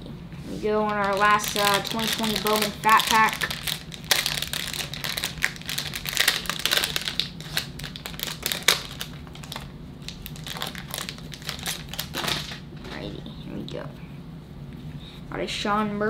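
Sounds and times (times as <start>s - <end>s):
plastic wrapper crinkling: 0.8s - 12.6s.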